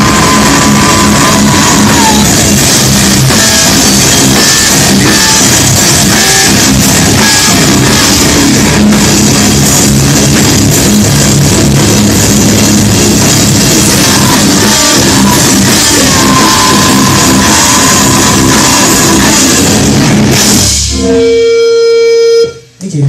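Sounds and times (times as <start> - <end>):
live rock band playing: 0.0 - 22.7.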